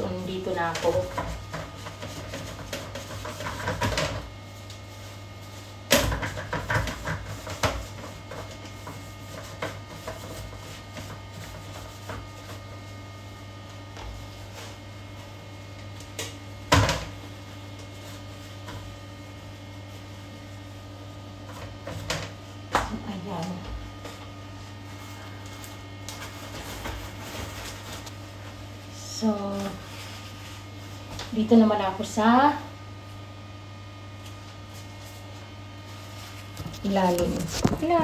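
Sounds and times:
scrubbing plastic toilet seat: 0.0s - 28.6s
steady low hum: 0.0s - 38.0s.

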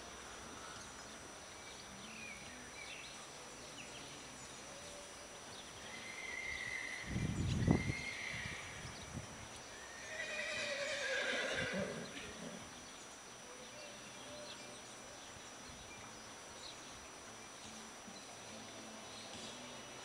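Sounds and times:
horse whinnying: 6.0s - 7.0s, 7.7s - 8.8s, 9.8s - 12.6s.

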